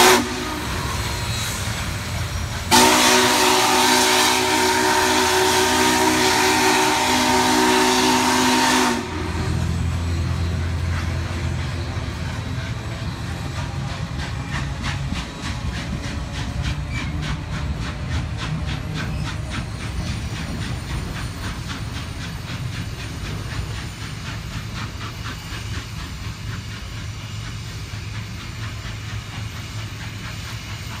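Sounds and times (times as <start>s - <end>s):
steam locomotive whistle chord: 0.0s - 1.0s, 2.7s - 9.9s
train cars rumbling: 0.0s - 31.0s.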